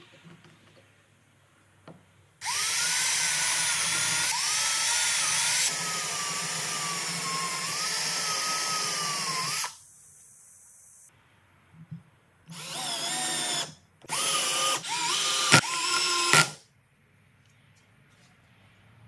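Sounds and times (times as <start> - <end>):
cordless drill boring into wood: 2.4 - 9.8, 12.5 - 16.6.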